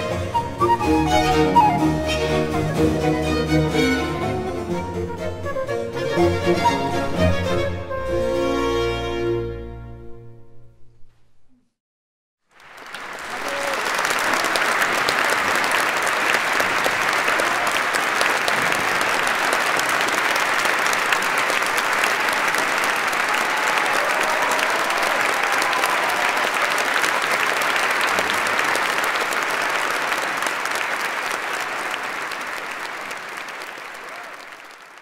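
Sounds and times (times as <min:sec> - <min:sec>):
audience applauding: 0:12.5 - 0:35.0.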